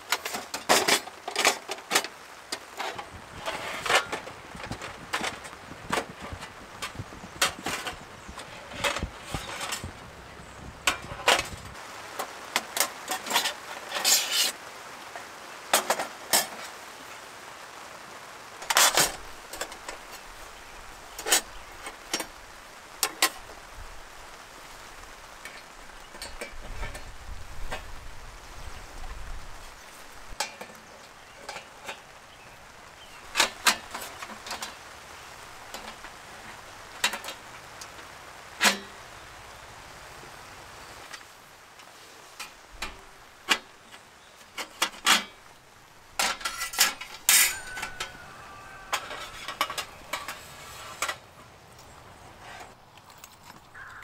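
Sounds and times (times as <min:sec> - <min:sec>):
steady background hiss: 0:00.0 - 0:54.0
cookware clinking and scraping: 0:46.2 - 0:51.2.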